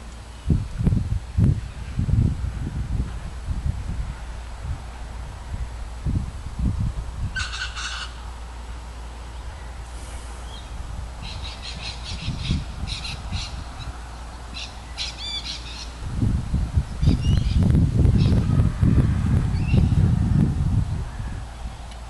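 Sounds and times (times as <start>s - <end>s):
wild birds calling: 7.3s - 8.5s, 9.3s - 16.0s.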